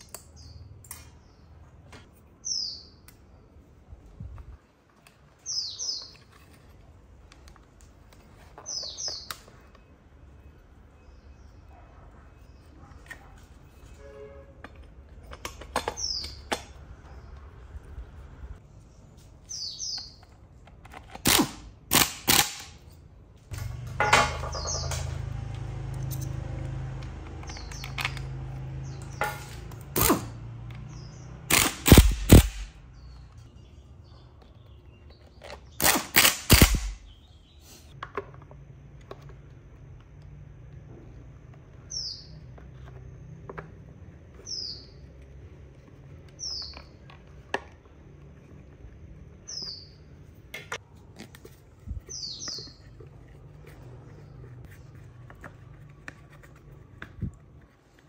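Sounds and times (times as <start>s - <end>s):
bird chirping: 2.4s - 3.6s, 5.3s - 6.6s, 8.3s - 14.2s, 18.5s - 20.4s, 23.7s - 29.9s, 36.8s - 38.0s, 44.2s - 45.5s, 49.3s - 50.3s, 51.8s - 54.6s
small parts and tools clicking: 20.2s - 33.4s.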